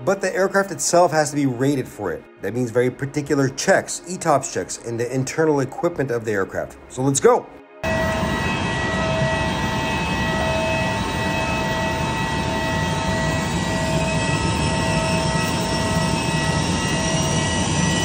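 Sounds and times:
faint high whine rising: 7.8s - 18.0s
jet engine rushing noise: 7.8s - 18.0s.

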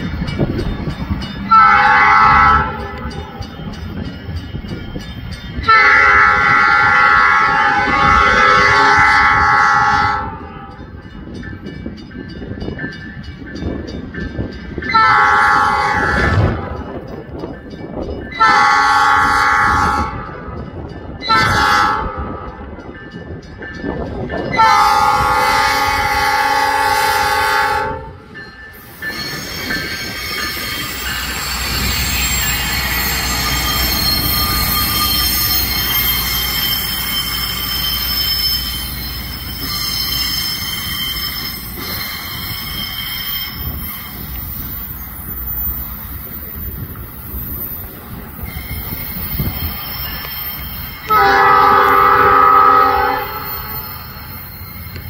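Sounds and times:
crossing bell ticking: 0.0s - 6.6s, 10.4s - 15.0s, 22.1s - 26.2s, 28.2s - 55.0s
train horn blasts: 1.5s - 3.3s, 5.7s - 10.8s, 14.9s - 16.8s, 18.4s - 20.5s, 21.3s - 22.6s, 24.5s - 28.3s, 51.1s - 53.9s.

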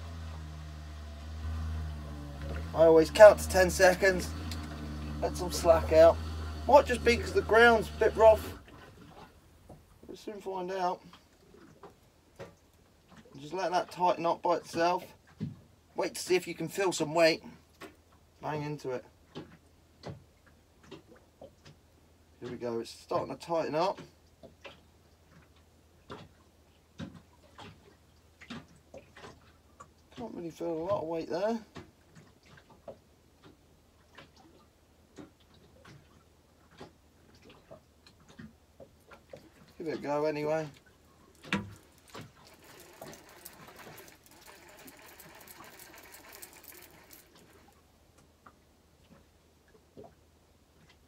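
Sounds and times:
fishing reel whirring: 1.4s - 8.8s, 39.7s - 47.8s
low steady hum: 39.0s - 49.5s.

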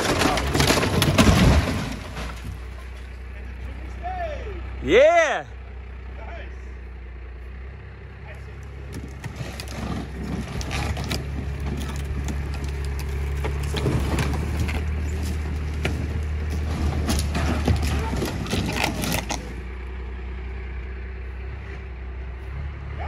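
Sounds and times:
wooden framing cracking and crashing: 0.0s - 3.2s, 8.7s - 19.7s
vehicle engine hum: 0.0s - 23.0s.

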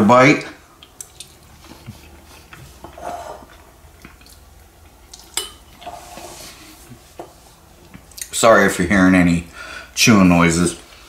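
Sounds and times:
soft chewing: 0.7s - 5.9s, 6.8s - 8.4s
utensil scraping a bowl: 2.2s - 3.6s, 5.8s - 6.8s.

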